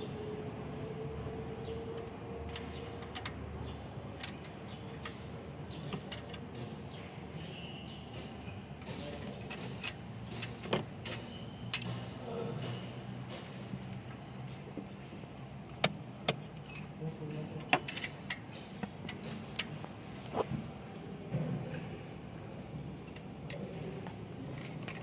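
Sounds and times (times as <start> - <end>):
metal tools clinking on engine: 8.1 - 14.2, 14.8 - 15.5, 16.4 - 17.0, 17.6 - 19.6.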